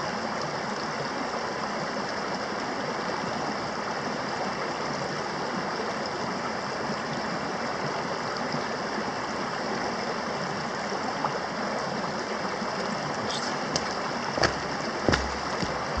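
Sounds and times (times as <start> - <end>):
creek splashing over stones: 0.1 - 16.0
footstep knocks: 13.3 - 16.0.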